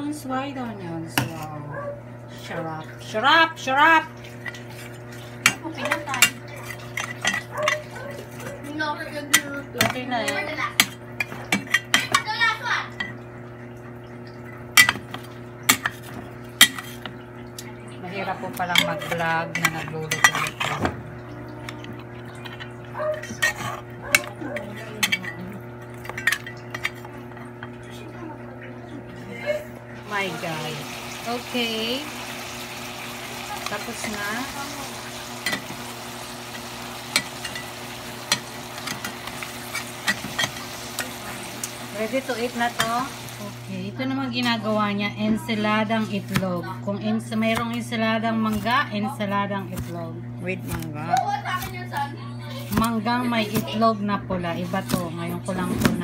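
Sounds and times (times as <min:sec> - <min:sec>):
utensil scraping pan: 0:18.5 - 0:21.0, 0:22.1 - 0:27.1, 0:32.4 - 0:43.4, 0:52.5 - 0:56.0
meat sizzling in frying pan: 0:30.1 - 0:43.7.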